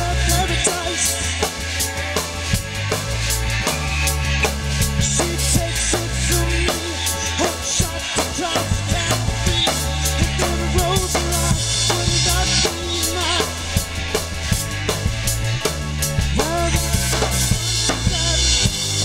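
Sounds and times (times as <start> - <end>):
drum kit beat: 0.0 - 19.0
live rock band playing: 0.0 - 19.0.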